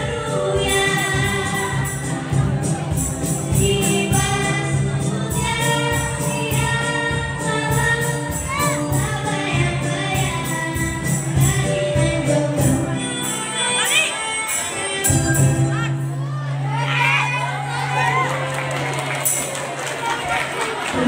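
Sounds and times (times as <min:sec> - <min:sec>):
girl singing into a microphone: 0:00.0 - 0:02.4, 0:03.4 - 0:15.8
cajon beat: 0:00.0 - 0:12.8
jingling percussion: 0:00.0 - 0:16.1, 0:19.0 - 0:20.3.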